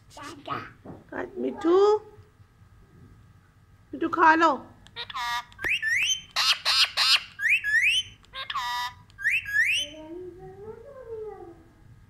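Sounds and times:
parakeet harsh screeches: 5.0s - 9.9s
parakeet shrill calls: 5.0s - 10.0s.

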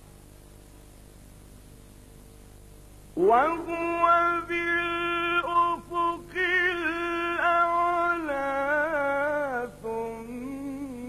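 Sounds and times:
man chanting melodically: 3.2s - 11.0s.

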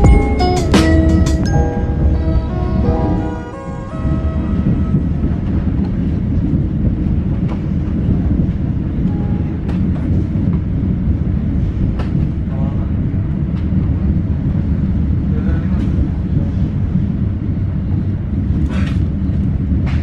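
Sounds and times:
background music: 0.0s - 6.2s
train rumbling inside coach: 0.0s - 20.0s
sharp clicks of train: 4.9s - 10.9s, 11.6s - 12.8s, 13.5s - 13.8s, 18.5s - 20.0s.

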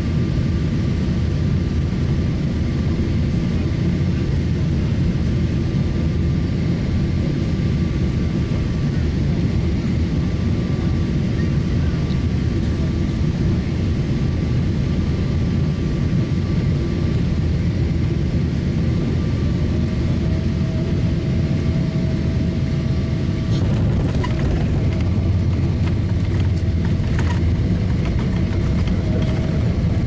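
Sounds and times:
aircraft cabin engine rumble: 0.0s - 30.0s
thin engine whine: 18.8s - 30.0s
landing gear knocks and rattles: 23.6s - 30.0s.

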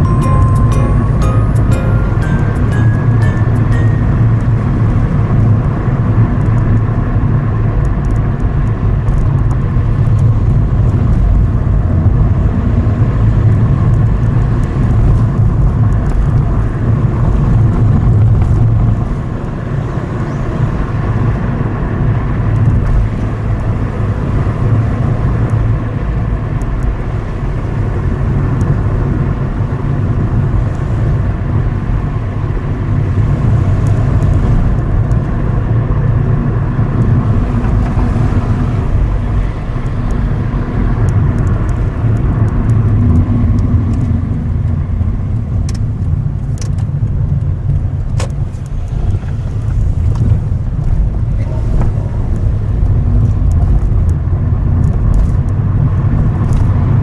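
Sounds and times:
car engine: 0.0s - 57.0s
tyre noise on road: 4.1s - 57.0s.

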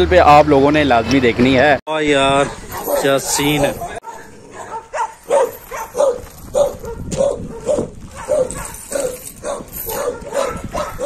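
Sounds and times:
dog barking: 2.4s - 11.0s.

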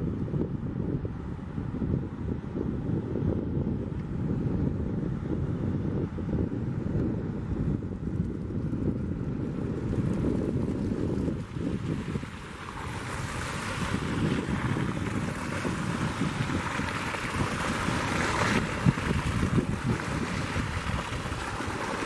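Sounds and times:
wind buffeting microphone: 0.0s - 22.0s
waves breaking on gravel: 9.9s - 22.0s.

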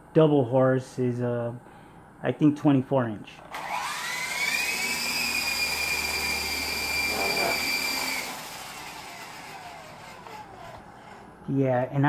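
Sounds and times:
toy helicopter rotor whine: 3.5s - 11.3s.

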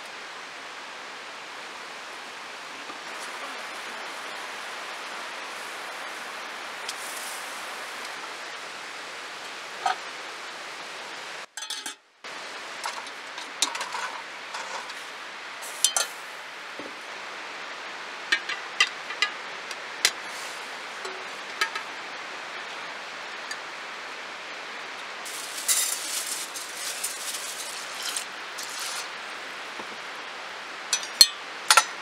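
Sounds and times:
steady rushing hiss: 0.0s - 32.0s
metal pot and lid clinking: 11.6s - 12.0s, 15.8s - 16.2s, 18.4s - 19.4s, 21.0s - 21.9s, 25.3s - 29.1s, 31.0s - 32.0s.

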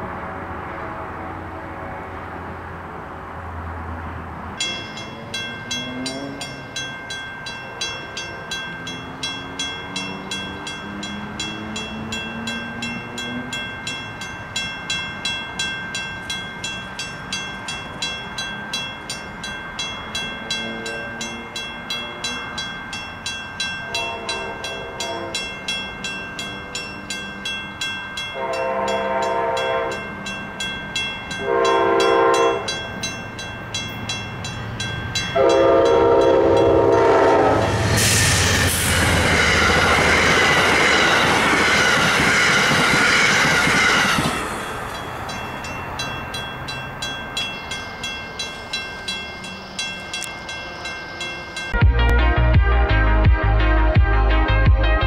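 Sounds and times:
railroad crossing bell ringing: 4.5s - 52.1s
locomotive chime horn blasts: 23.8s - 25.8s, 28.2s - 30.3s, 31.3s - 33.0s, 35.2s - 41.2s.

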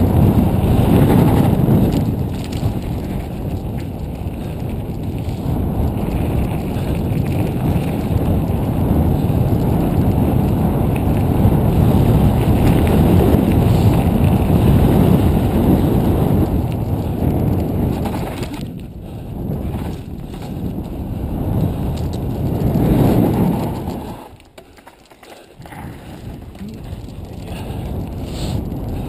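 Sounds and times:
wind on microphone: 0.0s - 24.6s, 25.5s - 29.0s
tyres rumbling over stones: 21.9s - 28.5s.

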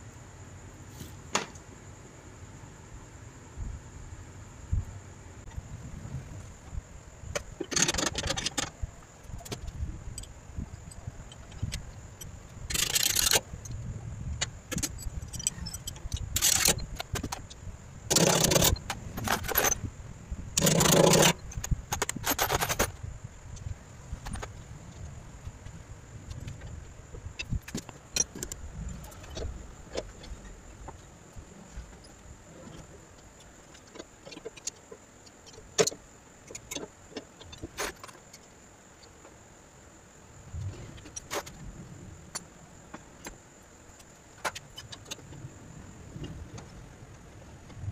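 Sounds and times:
metal tools rattling and scraping: 10.2s - 13.5s, 14.7s - 17.4s, 18.1s - 19.8s, 20.6s - 23.0s.

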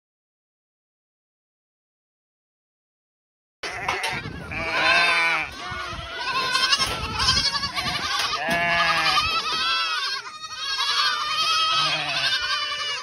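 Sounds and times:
goats bleating: 3.6s - 13.0s.

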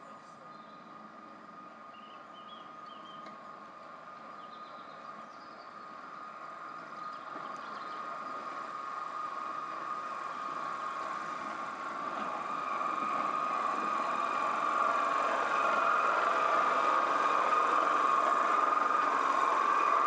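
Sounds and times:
locomotive diesel engine: 0.0s - 20.0s.

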